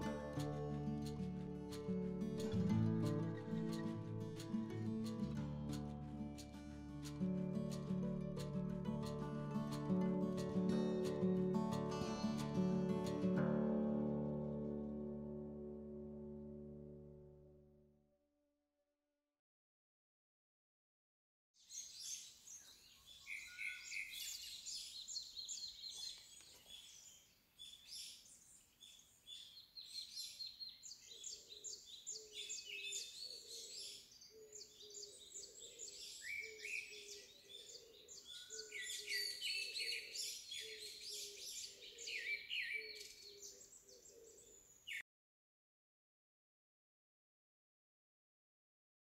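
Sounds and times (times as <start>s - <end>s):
birds chirping and singing: 21.7s - 45.0s.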